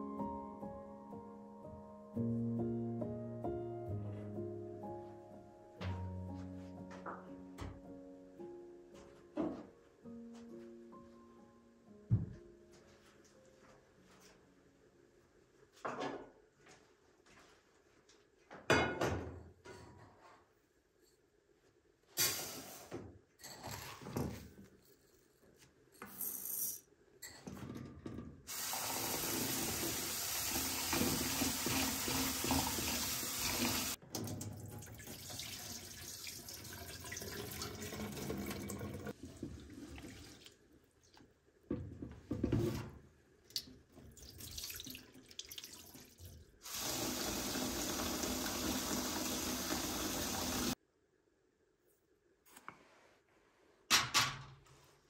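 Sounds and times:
rinse water poured into sink: 0:28.5 - 0:40.6, 0:44.1 - 0:50.8
tap water running into pot: 0:28.5 - 0:40.6, 0:43.5 - 0:50.8.

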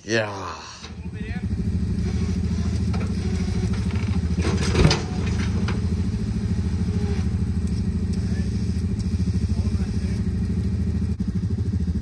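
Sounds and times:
engine rumbling: 0:00.0 - 0:12.0.

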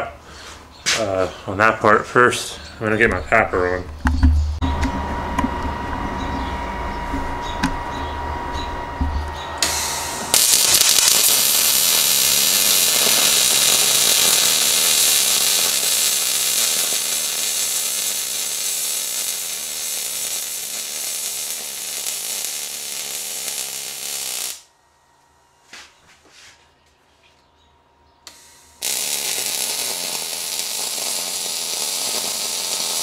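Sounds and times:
welding arc sizzling: 0:08.6 - 0:24.7, 0:28.3 - 0:33.0.

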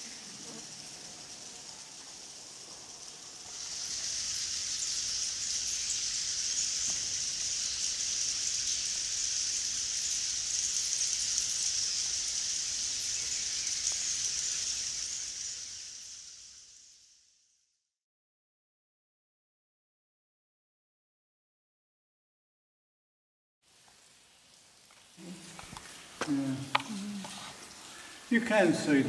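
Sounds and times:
high-pitched rainforest hiss: 0:00.0 - 0:18.0, 0:23.6 - 0:29.0.

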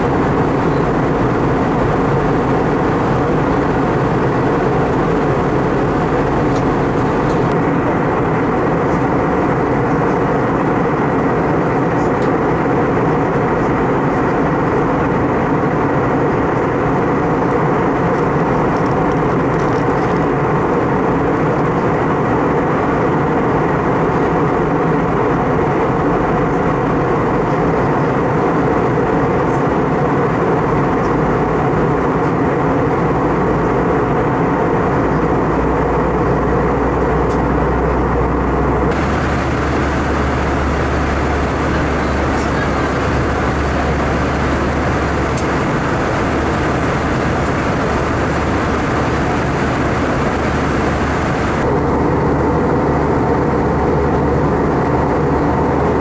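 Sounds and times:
jet engine and airflow roar: 0:00.0 - 0:56.0
faint steady hum: 0:38.9 - 0:51.7.

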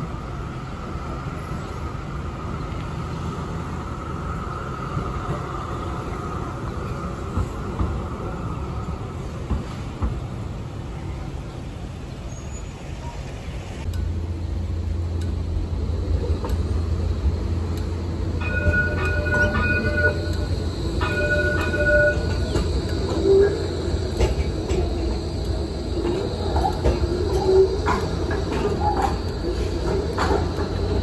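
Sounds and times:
tram rumbling past: 0:00.0 - 0:31.0
tram wheels squealing: 0:12.0 - 0:13.6, 0:17.6 - 0:31.0.

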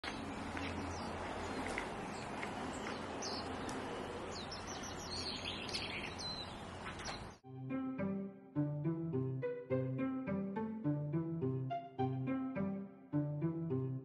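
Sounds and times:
footsteps on gravel: 0:00.0 - 0:03.8
small birds chirping: 0:00.0 - 0:07.4.

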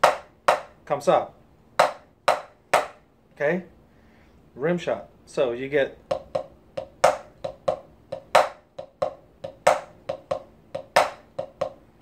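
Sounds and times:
drumstick tapping on practice pad: 0:00.0 - 0:00.8, 0:01.8 - 0:03.0, 0:06.0 - 0:12.0.

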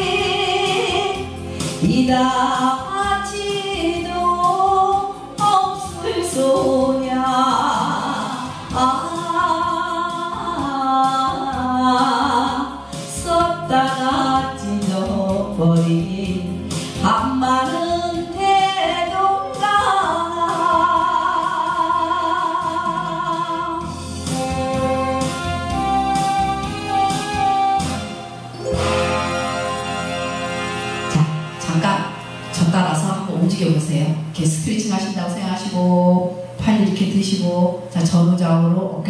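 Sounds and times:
woman singing into microphone: 0:00.0 - 0:23.9
karaoke backing track: 0:00.0 - 0:39.0.

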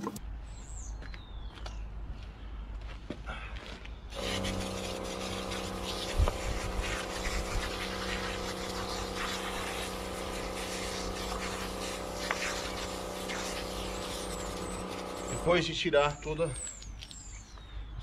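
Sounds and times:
electric pump hum: 0:04.1 - 0:15.8
water jet hissing: 0:04.1 - 0:15.9.

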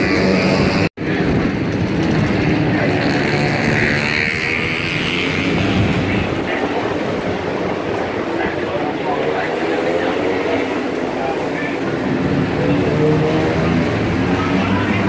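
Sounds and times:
loud vehicle engine noise: 0:00.0 - 0:15.0.

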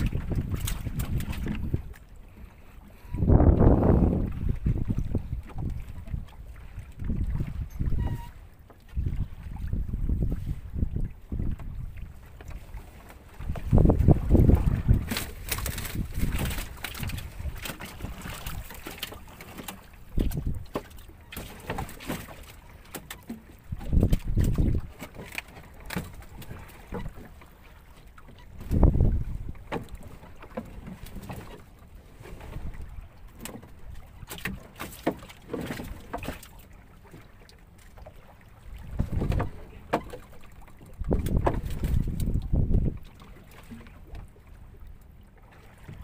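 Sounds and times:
wind rumble on microphone: 0:00.0 - 0:18.9, 0:20.0 - 0:20.8, 0:23.7 - 0:25.0, 0:28.5 - 0:30.1, 0:38.6 - 0:40.1, 0:40.8 - 0:44.8.

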